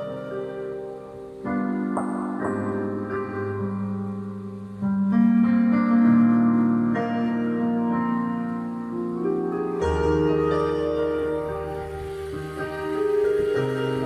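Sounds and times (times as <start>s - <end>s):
electronic keyboard chords: 0.0s - 14.0s.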